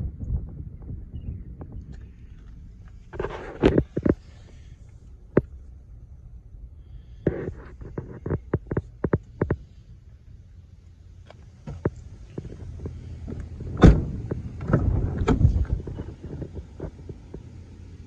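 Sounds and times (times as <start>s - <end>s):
low steady rumble: 0.0s - 18.0s
sharp clicks and knocks: 7.2s - 9.8s.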